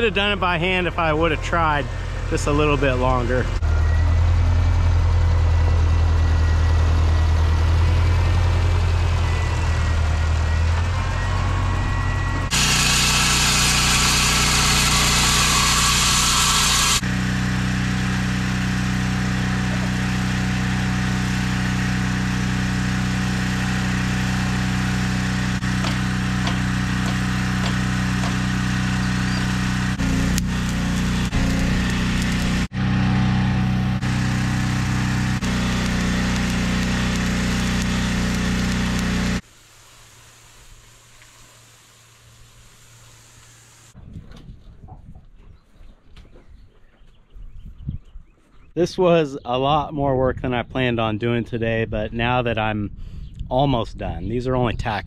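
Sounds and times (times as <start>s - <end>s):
tractor engine running: 0.0s - 39.5s
engine low hum: 0.0s - 44.0s
loud hiss: 12.5s - 17.0s, 34.0s - 44.0s.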